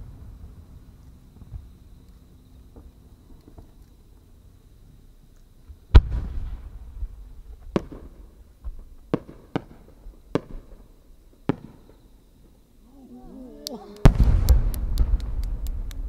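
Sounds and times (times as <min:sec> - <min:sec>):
sharp firework bangs: 0:05.9 - 0:06.9, 0:09.1 - 0:10.7, 0:14.0 - 0:16.0
deep firework boom: 0:05.9 - 0:10.7, 0:14.0 - 0:16.0.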